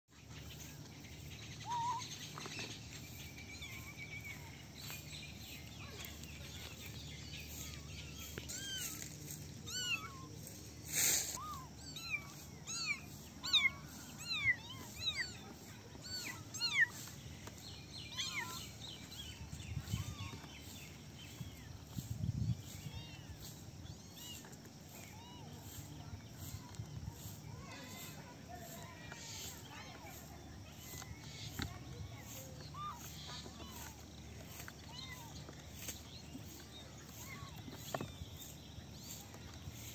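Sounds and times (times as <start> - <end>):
kittens mewing: 9.7 - 10.3.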